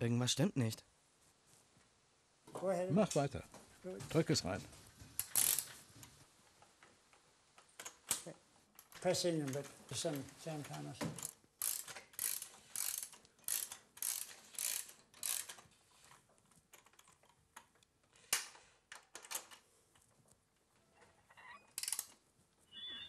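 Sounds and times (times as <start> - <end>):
ratchet wrench ratcheting: 5.2 - 5.7, 11.2 - 15.6, 21.8 - 22.1.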